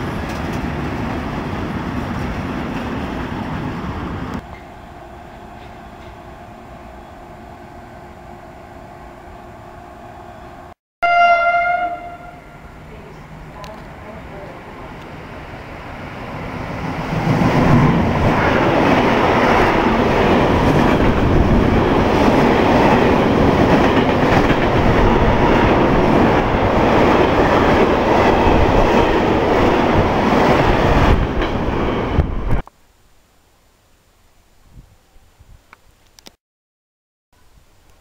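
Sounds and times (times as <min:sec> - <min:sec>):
freight train wheels rumbling on rails: 0:00.0 - 0:06.4, 0:12.8 - 0:32.6.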